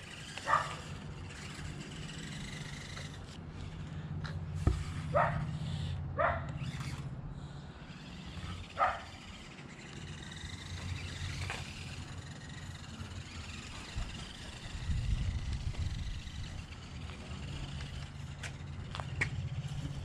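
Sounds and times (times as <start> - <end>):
steady low hum: 0.0 - 20.0
dog barking: 0.4 - 0.8, 5.1 - 5.4, 6.2 - 6.5, 8.8 - 9.1.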